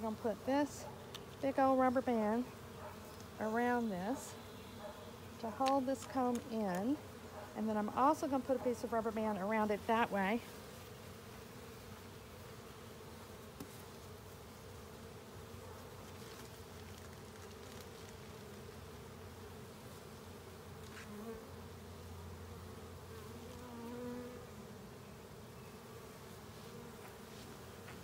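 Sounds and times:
bee buzzing past: 0.0 - 28.0
bees humming: 0.0 - 28.0.

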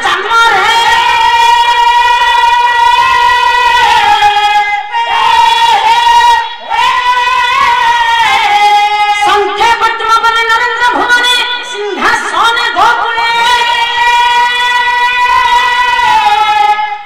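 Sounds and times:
woman singing in high voice: 0.0 - 17.0.

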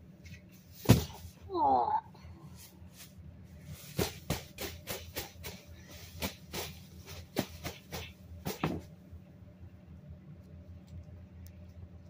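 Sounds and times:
plush toys knocking and rustling: 0.7 - 1.4, 3.8 - 9.0.

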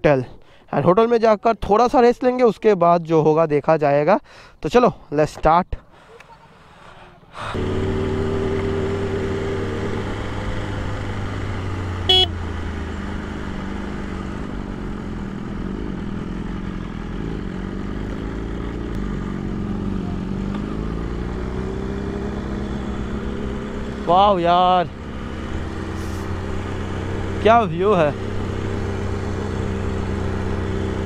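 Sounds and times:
motorcycle engine running: 7.6 - 31.0
short horn toot: 12.1 - 12.4.

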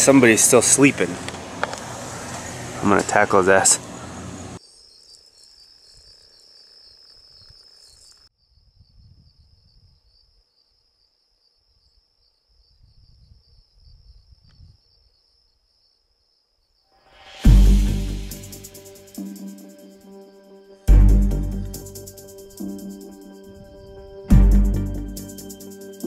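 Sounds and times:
insects chirring: 4.6 - 17.0, 18.3 - 20.8, 21.6 - 26.0
loud music: 17.2 - 26.0.

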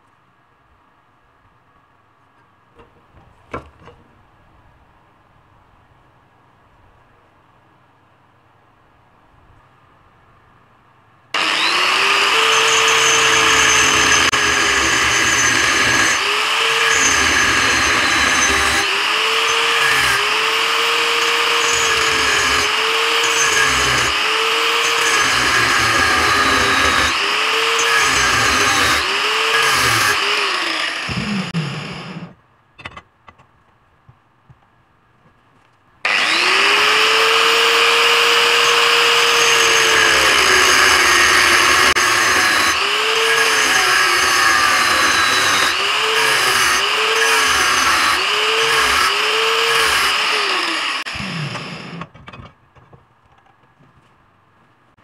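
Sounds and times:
angle grinder cutting steel: 11.4 - 32.4, 36.1 - 52.1.

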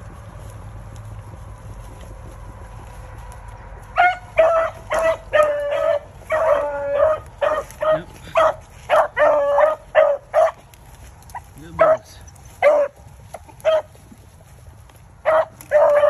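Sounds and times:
hound barking: 3.9 - 10.7, 11.3 - 14.0, 15.2 - 16.0.

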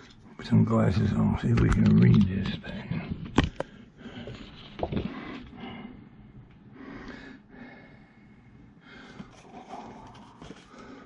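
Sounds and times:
paper and plastic rustling: 9.1 - 11.0.

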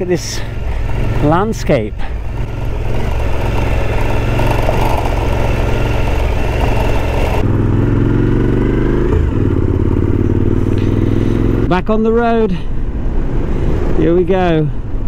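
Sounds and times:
rattling and rushing noise: 0.0 - 7.6
motorcycle engine running: 0.0 - 11.7.

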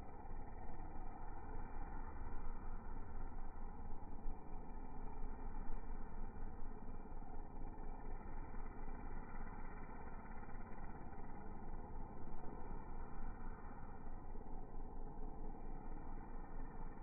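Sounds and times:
muffled engine running: 0.0 - 17.0.

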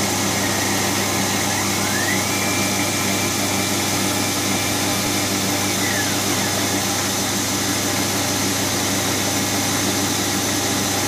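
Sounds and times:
milling machine motor whining: 0.0 - 8.3.

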